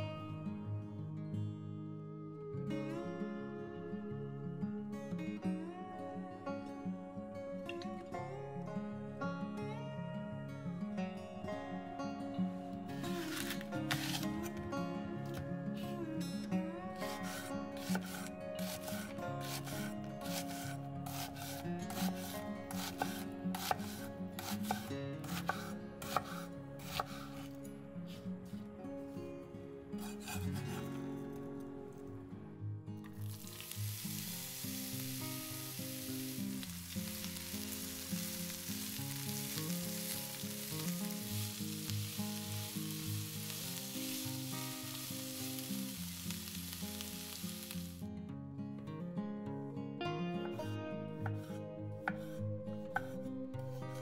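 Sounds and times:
onions sizzling in a frying pan: 0:13.2 - 0:14.2, 0:17.1 - 0:26.4, 0:33.2 - 0:48.0
knife dicing onion on wood: 0:13.2 - 0:14.3, 0:17.1 - 0:27.5, 0:51.3 - 0:53.2.

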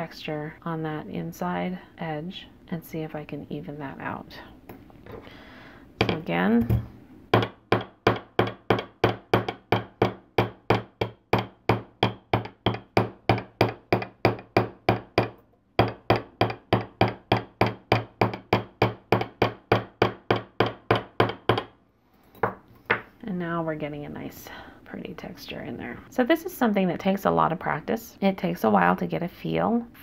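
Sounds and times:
hammer tapping wire on steel block: 0:07.3 - 0:21.7.

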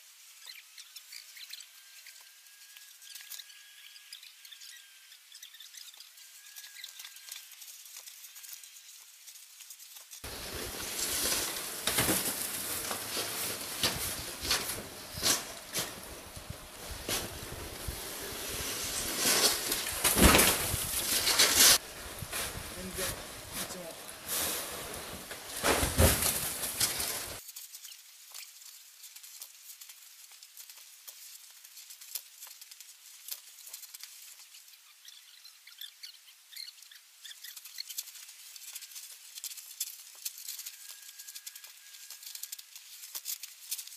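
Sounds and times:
snow scoop scraping snow: 0:10.2 - 0:27.4.

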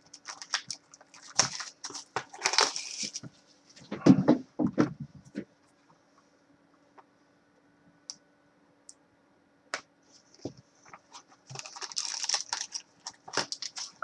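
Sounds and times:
plastic wrap crinkling and tearing: 0:00.0 - 0:03.3, 0:11.1 - 0:14.0.

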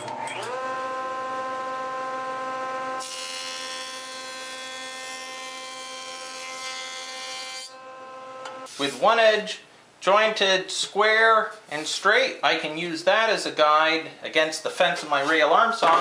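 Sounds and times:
jointer motor whine: 0:00.0 - 0:03.2.

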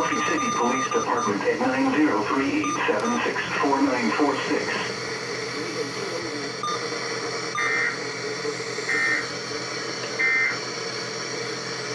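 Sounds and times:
buzzing two-tone data bursts: 0:07.5 - 0:08.1, 0:08.8 - 0:09.3, 0:10.2 - 0:10.6.

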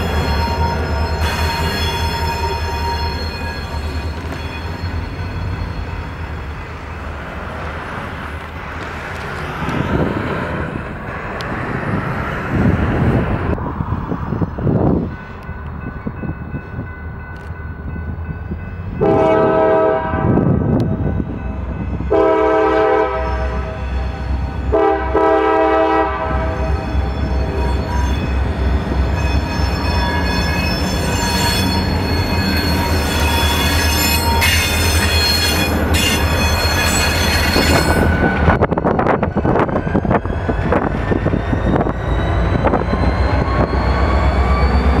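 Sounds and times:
locomotive air horn blasts: 0:19.0 - 0:20.5, 0:22.1 - 0:23.8, 0:24.7 - 0:26.8.

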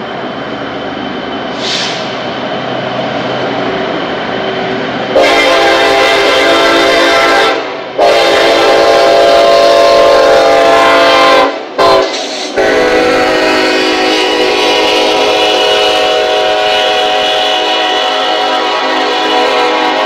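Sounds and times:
train wheels rumbling: 0:00.0 - 0:20.0
locomotive air horn: 0:05.1 - 0:20.0.

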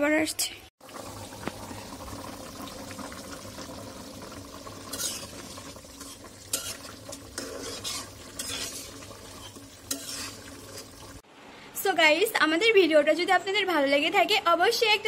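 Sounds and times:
curry simmering: 0:00.8 - 0:11.3
spoon scraping metal pan: 0:04.9 - 0:11.1.

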